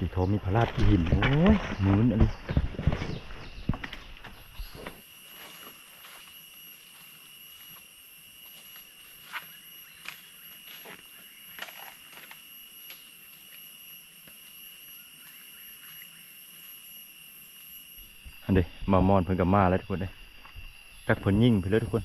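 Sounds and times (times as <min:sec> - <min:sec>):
high-pitched insect drone: 0:03.4 - 0:22.0.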